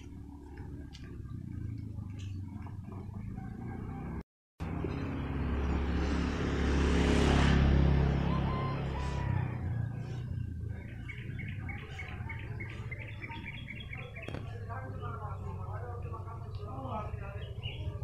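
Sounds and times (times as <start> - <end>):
motor scooter passing: 0.0 - 18.0
bird chirping: 10.0 - 18.0.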